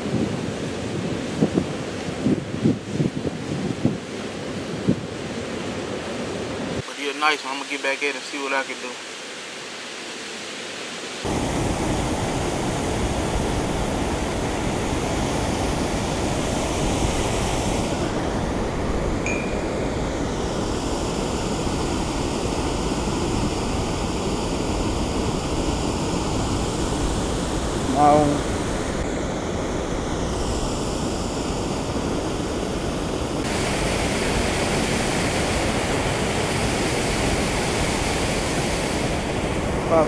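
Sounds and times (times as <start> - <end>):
faint hiss: 6.8 - 15.4
turbulent water churning: 11.2 - 40.0.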